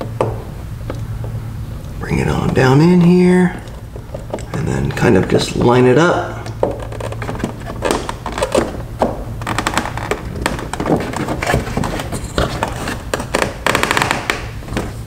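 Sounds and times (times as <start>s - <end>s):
hands tapping and rubbing plastic: 2.3s - 5.4s, 6.4s - 15.0s.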